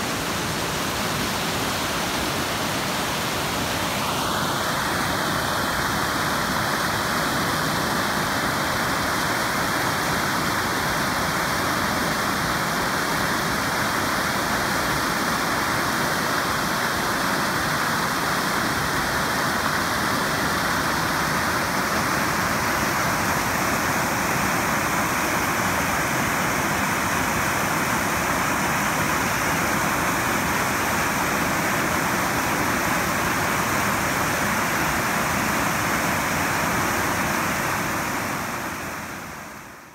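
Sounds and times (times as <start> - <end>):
floodwater rushing: 0.0 - 39.8.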